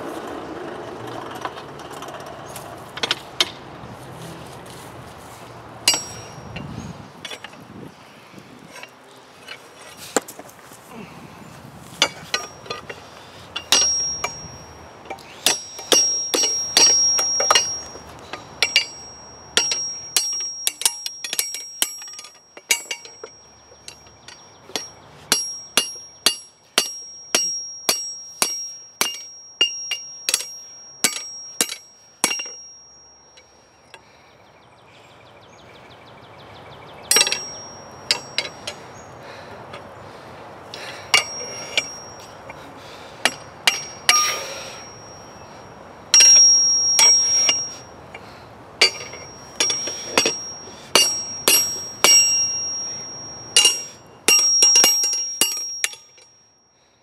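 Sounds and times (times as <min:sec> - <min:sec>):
hammer clanging on anvil: 0:05.9 - 0:06.4, 0:12.0 - 0:13.0, 0:13.6 - 0:33.4, 0:37.1 - 0:38.8, 0:40.8 - 0:42.3, 0:43.3 - 0:45.4, 0:46.1 - 0:47.9, 0:48.8 - 0:56.3.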